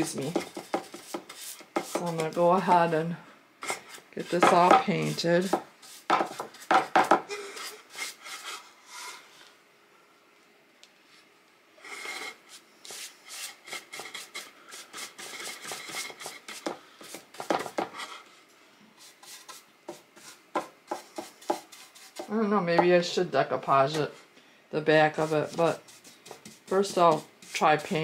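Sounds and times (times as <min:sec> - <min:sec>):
paintbrush scrubbing wood: 0:00.0 - 0:03.0, 0:19.0 - 0:22.5, 0:25.1 - 0:28.0.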